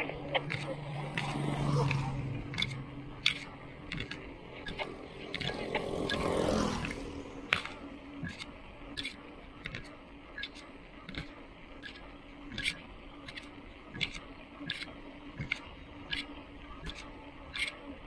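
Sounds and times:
bicycle rattling on concrete: 0.0 - 8.4
motorbike passing: 0.0 - 8.4.

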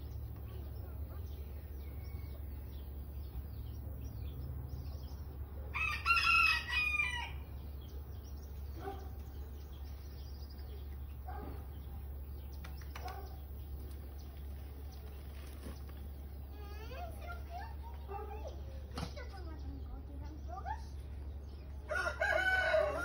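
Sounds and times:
rooster crowing: 5.7 - 7.5, 21.9 - 23.0.

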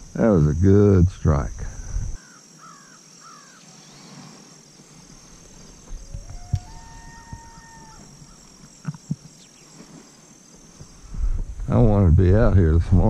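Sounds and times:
elk bugle: 6.1 - 8.3.

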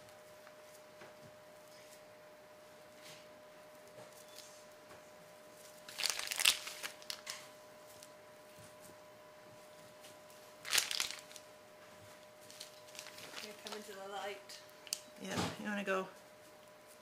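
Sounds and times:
faint steady hum: 0.0 - 17.0
packaging crinkling: 5.8 - 7.5, 10.6 - 11.5, 12.5 - 13.9.

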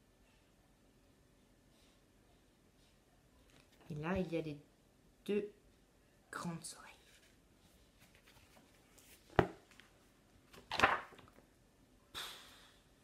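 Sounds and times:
page turning swish: 10.5 - 11.2.

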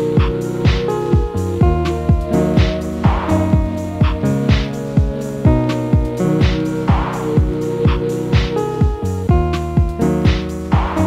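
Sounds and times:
held chords: 0.0 - 11.0
kick drum beat: 0.0 - 11.0.

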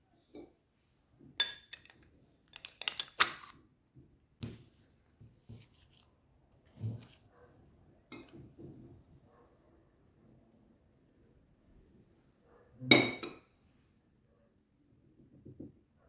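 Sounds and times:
metal scoop clinking on glass bowl: 1.4 - 1.9.

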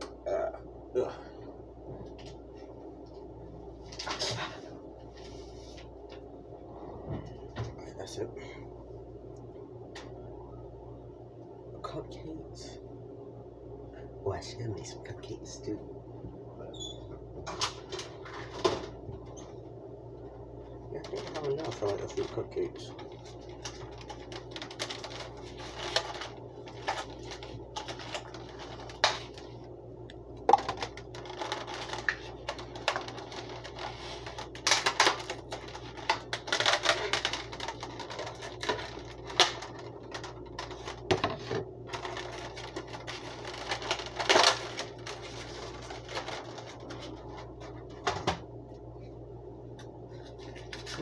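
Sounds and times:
stiff plastic packaging crackling: 20.9 - 29.7, 30.4 - 48.0.

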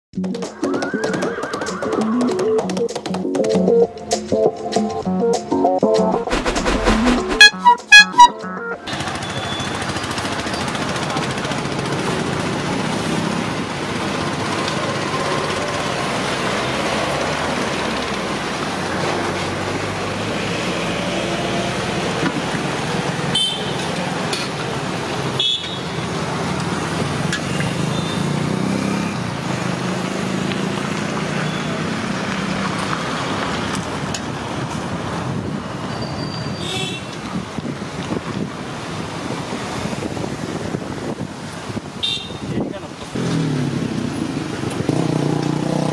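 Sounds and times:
road traffic noise: 0.1 - 45.9
vehicle horns honking: 7.0 - 9.8, 23.3 - 23.9, 25.4 - 25.9, 36.4 - 37.2, 42.0 - 42.5.

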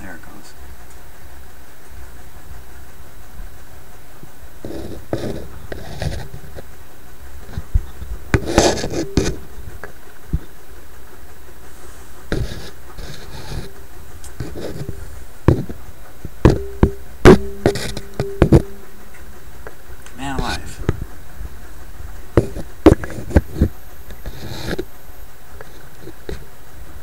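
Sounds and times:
steady hiss: 0.0 - 27.0
short humming tone: 3.8 - 10.8, 11.7 - 27.0
clicks and knocks in radio chassis: 14.3 - 18.7, 22.3 - 24.9.

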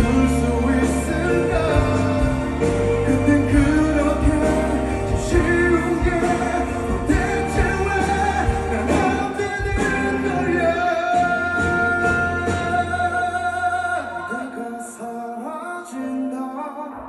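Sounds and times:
drums steady beat: 0.0 - 13.6
live pop ballad by a band: 0.0 - 17.0
man singing: 0.0 - 17.0.

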